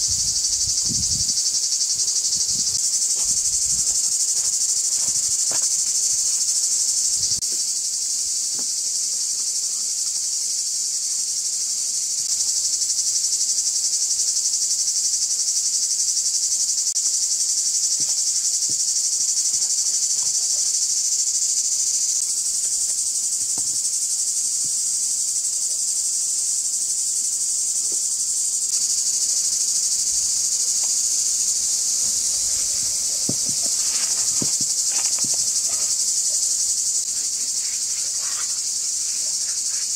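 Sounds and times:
insects buzzing: 0.0 - 39.9
faint handling knocks and taps: 32.5 - 35.8.

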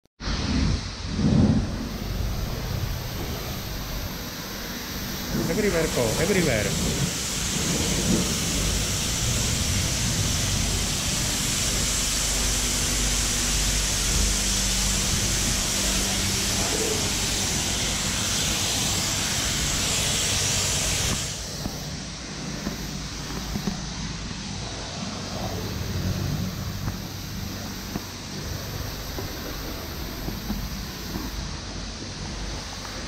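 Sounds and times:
pressure washer spraying water: 0.3 - 33.0.

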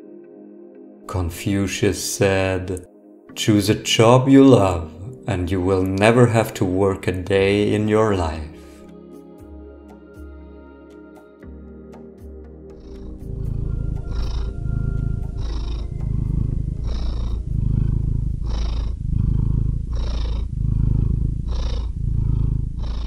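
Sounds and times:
music track: 0.0 - 18.6
cat purring: 3.4 - 8.5, 12.7 - 23.0.

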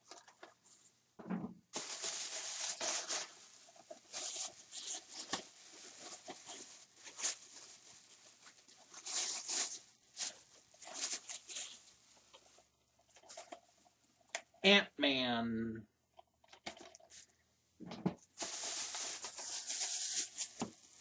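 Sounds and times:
plastic bag rustling: 1.7 - 13.7, 18.3 - 21.0.

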